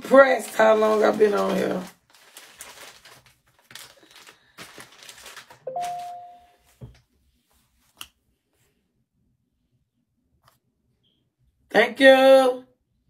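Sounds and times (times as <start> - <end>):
rustling handling noise: 0.0 - 8.7
two-note chime: 5.7 - 6.6.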